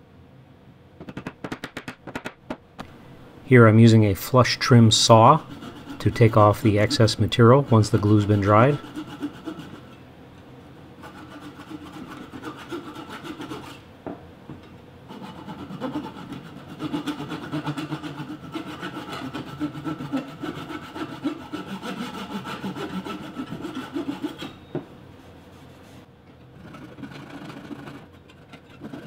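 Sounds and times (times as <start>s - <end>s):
hand saw cutting wood: 5.2s - 10.0s, 11.0s - 13.8s, 15.1s - 24.6s, 26.6s - 29.0s.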